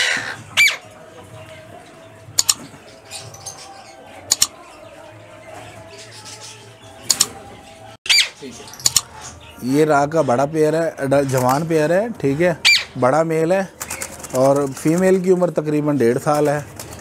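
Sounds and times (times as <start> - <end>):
parakeets screeching: 0.0 - 1.0, 2.7 - 9.7, 12.6 - 13.0.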